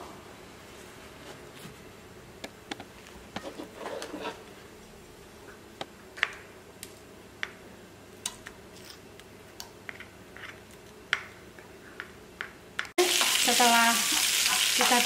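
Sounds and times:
spatula scraping plate: 0:03.4 - 0:04.4.

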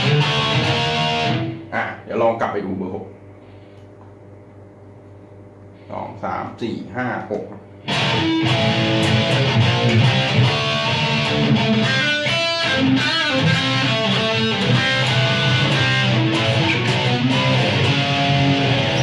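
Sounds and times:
distorted electric guitar: 0:00.0 - 0:02.1, 0:07.8 - 0:19.0.

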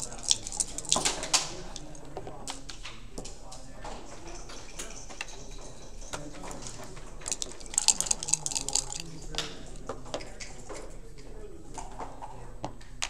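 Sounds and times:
dice rattling and clicking: 0:00.0 - 0:02.1, 0:04.4 - 0:10.8.

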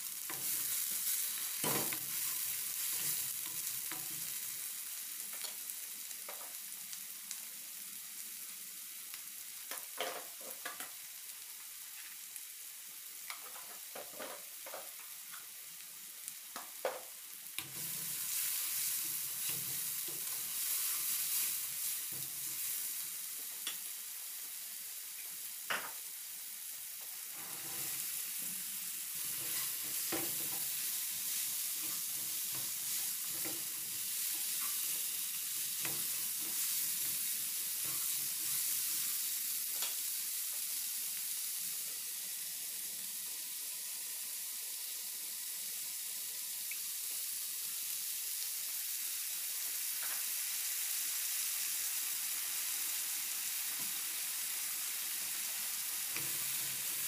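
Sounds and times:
food sizzling in a pan: 0:00.0 - 0:57.0
spatula scraping pan: 0:27.4 - 0:28.2, 0:29.2 - 0:35.1.

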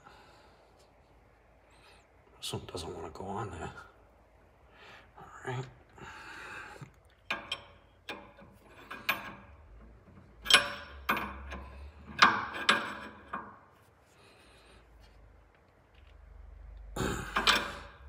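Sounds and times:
wrenches clicking and scraping: 0:07.1 - 0:13.9, 0:15.0 - 0:18.0.

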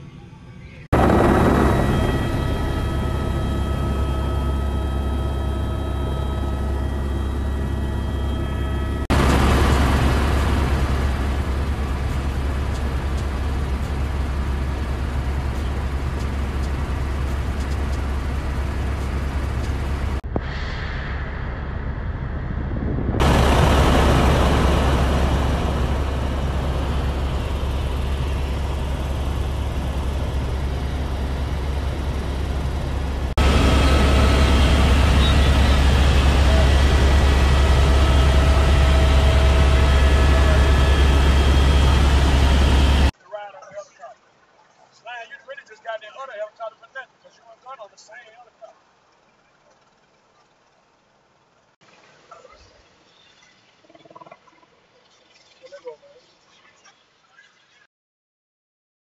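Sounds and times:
helicopter rotor and engine drone: 0:00.0 - 0:20.2, 0:23.2 - 0:43.2
thin high whine: 0:00.0 - 0:43.1.

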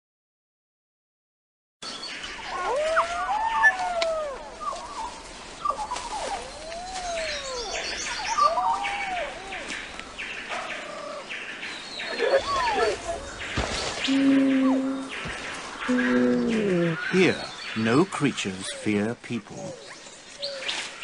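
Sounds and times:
bird chirps and trills: 0:04.5 - 0:21.0.

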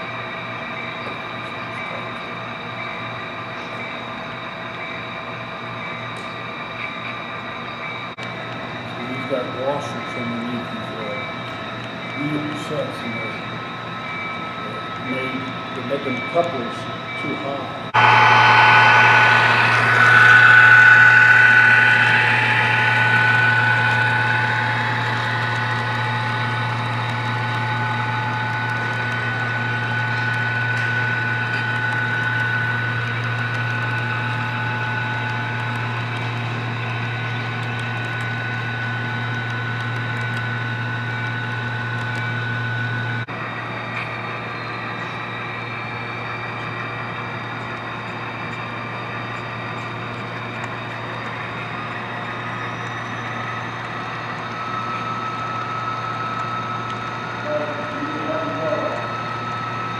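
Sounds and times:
model train hum and whine: 0:00.0 - 0:59.9.

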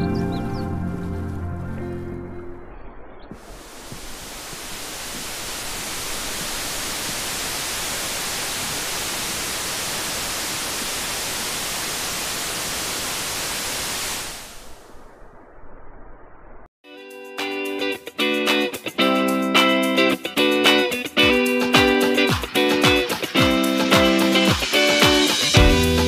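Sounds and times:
waterfall rushing: 0:03.3 - 0:14.8.

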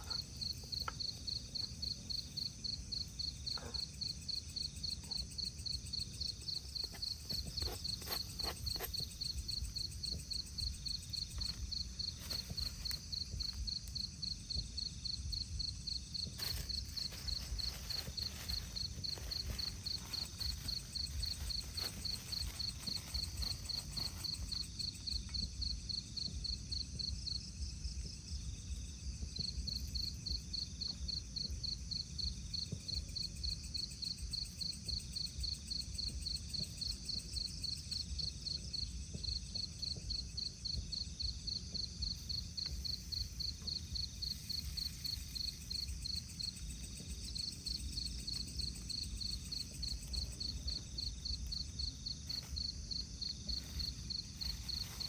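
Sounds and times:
crickets chirping: 0:00.0 - 0:55.0
higher insect chirping: 0:00.0 - 0:55.0.

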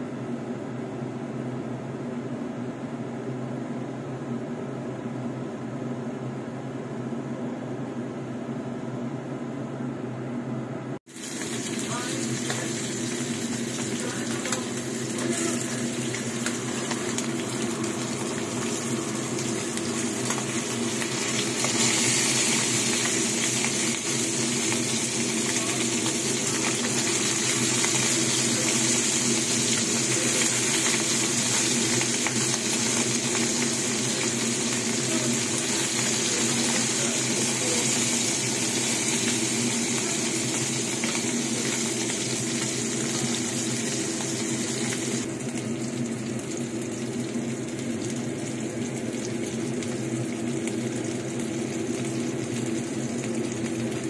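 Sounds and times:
fish sizzling in hot oil: 0:11.1 - 0:54.0.

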